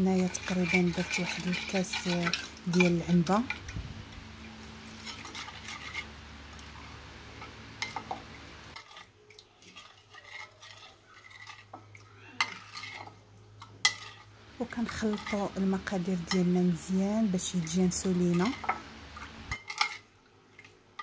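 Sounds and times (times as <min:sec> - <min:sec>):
metal spoon stirring liquid: 0:00.0 - 0:03.7, 0:04.8 - 0:06.1, 0:08.7 - 0:16.6, 0:17.3 - 0:21.0.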